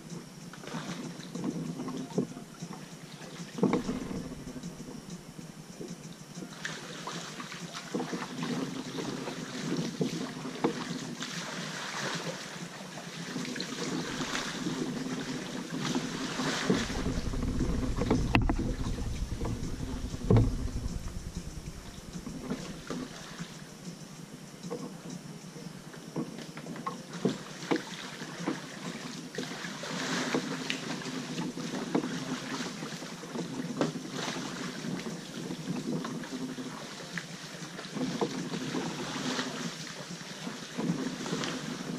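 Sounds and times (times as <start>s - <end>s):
paddle splashing water: 0.5s - 5.3s, 6.4s - 23.7s, 27.1s - 41.9s
wind rumble on microphone: 3.6s - 5.6s, 13.9s - 23.2s.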